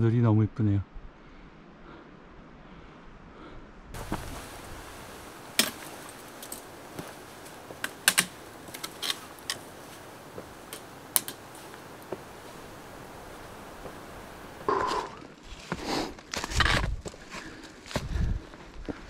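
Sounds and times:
steady background hiss: 4.0 - 16.3
trekking poles and boots on rock: 4.0 - 19.0.

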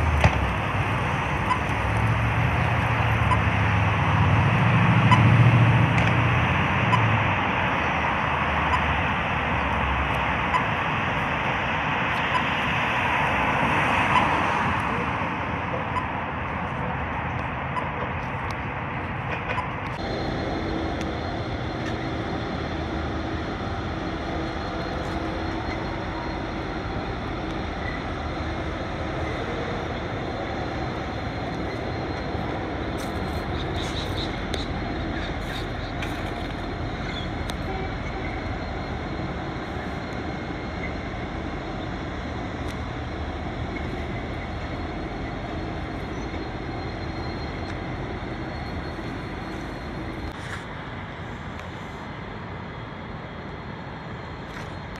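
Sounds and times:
train wheels droning: 0.0 - 53.0
diesel locomotive passing: 0.0 - 54.9
high metallic clicks and squeals: 1.4 - 1.8, 10.1 - 10.8, 12.2 - 12.6, 27.3 - 39.1.

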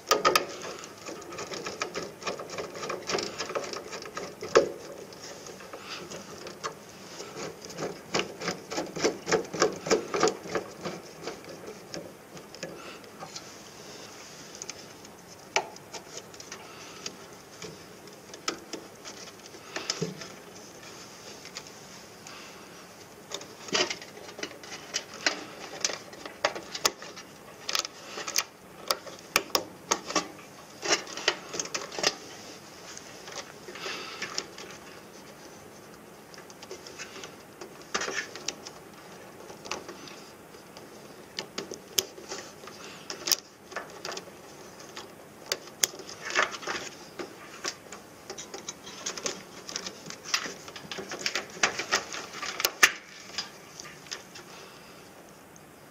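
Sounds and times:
wire connectors clicking and snapping: 23.3 - 32.2, 43.1 - 54.4.

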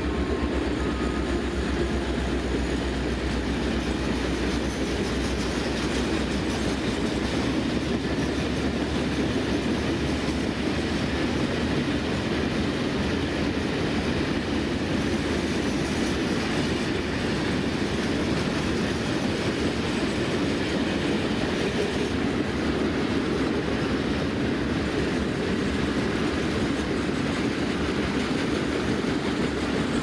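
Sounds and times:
freight train wheels rolling: 0.0 - 30.0.

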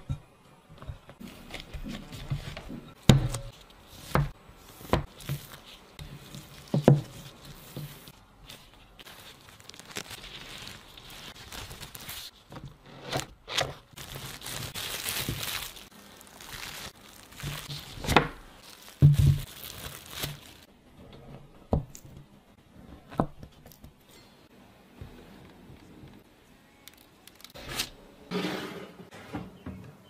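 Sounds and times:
cling film crinkling: 5.1 - 20.7.

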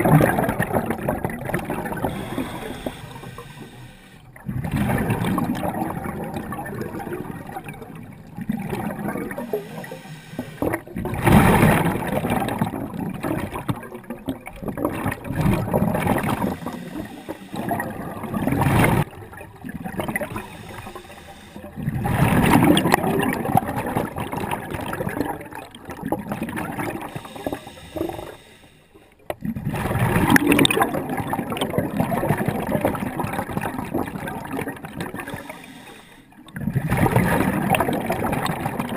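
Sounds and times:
exhaled air bubbles: 0.0 - 38.9
diver breathing through regulator: 1.9 - 4.4, 9.3 - 10.8, 16.4 - 18.1, 20.2 - 21.8, 26.9 - 29.1, 35.2 - 36.4.

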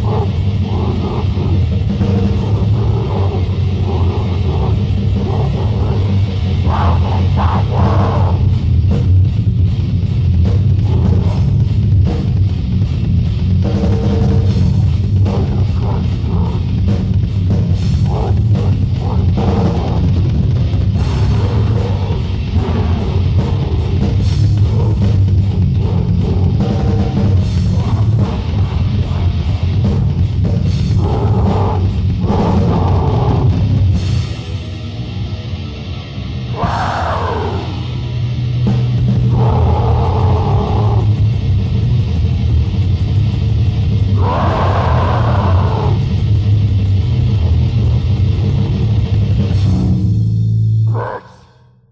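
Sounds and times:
vocals: 0.0 - 8.6, 14.5 - 34.6
fast drumming with cymbals: 0.0 - 34.6
distorted heavy metal guitar: 0.0 - 51.9.

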